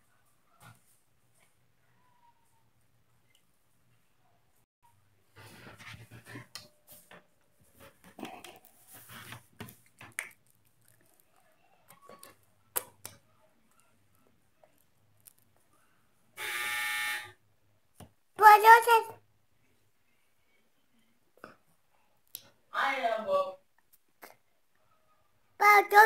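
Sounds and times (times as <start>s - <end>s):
loud buzzing tone: 16.4s - 17.4s.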